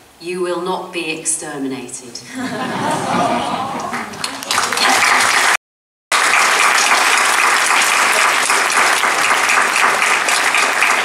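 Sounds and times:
people talking: 0:00.2 - 0:05.4
audience applauding: 0:02.8 - 0:11.0.

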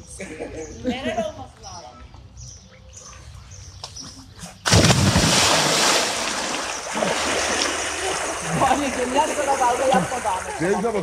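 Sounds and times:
water splashing and rushing: 0:04.7 - 0:11.0.

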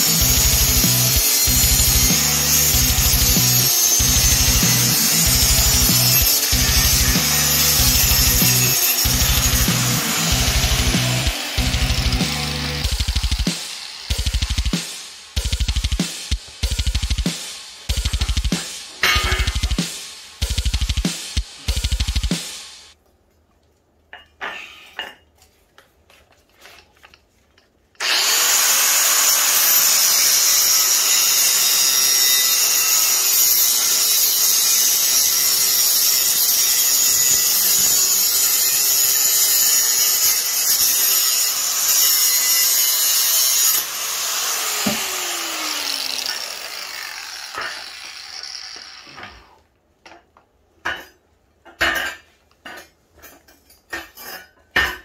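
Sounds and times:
angle grinder cutting steel: 0:00.0 - 0:21.0, 0:28.0 - 0:49.6.

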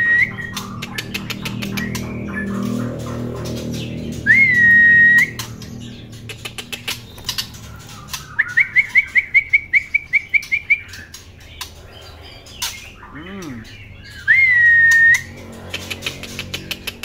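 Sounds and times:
bird whistling: 0:00.0 - 0:02.6, 0:04.2 - 0:05.7, 0:06.5 - 0:11.2, 0:12.0 - 0:16.4.

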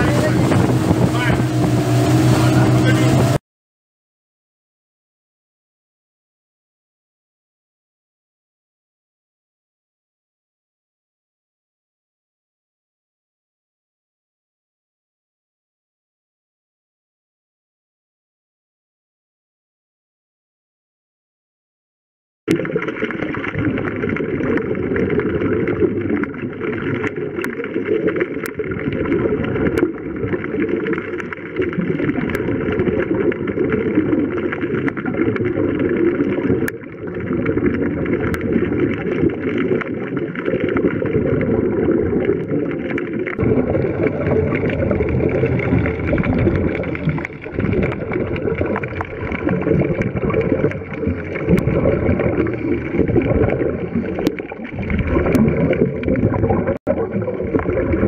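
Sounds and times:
underwater rumbling wash and bubbles: 0:00.0 - 0:03.4, 0:22.5 - 0:58.0.

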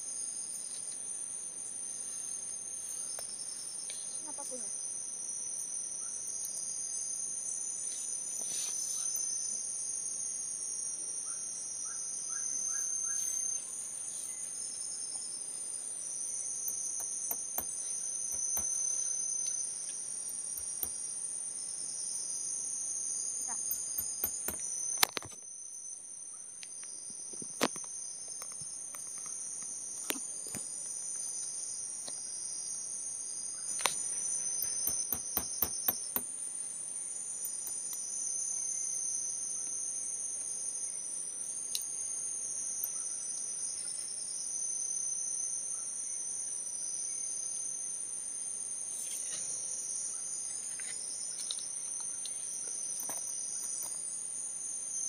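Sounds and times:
forest insects chorus: 0:00.0 - 0:55.0
sharp clicks and knocks: 0:16.7 - 0:18.8, 0:23.5 - 0:25.4, 0:34.6 - 0:36.3, 0:37.5 - 0:38.0.

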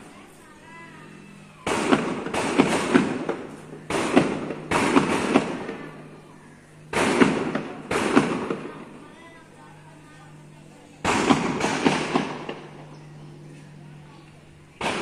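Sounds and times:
distant gunshots with echo: 0:01.6 - 0:06.0, 0:06.9 - 0:08.8, 0:11.0 - 0:12.8, 0:14.8 - 0:15.0.

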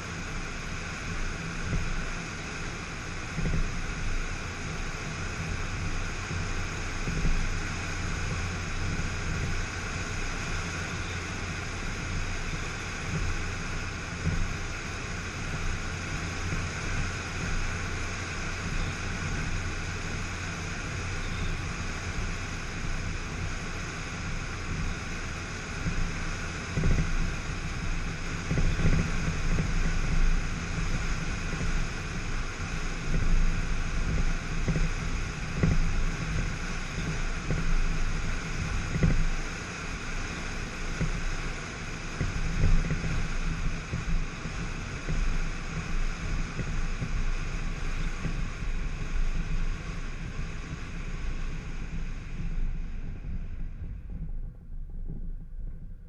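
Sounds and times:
low engine rumble: 0:00.0 - 0:56.0
road and wind noise: 0:00.0 - 0:56.0
irregular low thumps: 0:48.1 - 0:56.0.

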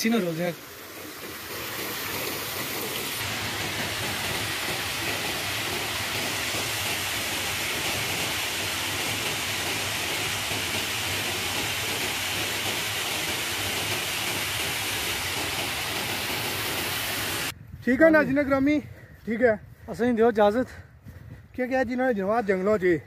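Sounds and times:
waterfall rushing: 0:00.0 - 0:17.5.

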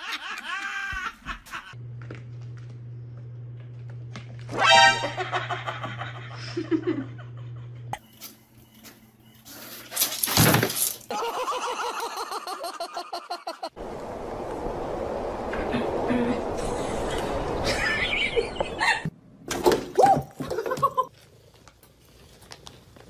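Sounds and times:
person laughing in bursts: 0:00.0 - 0:01.8, 0:11.1 - 0:13.8.

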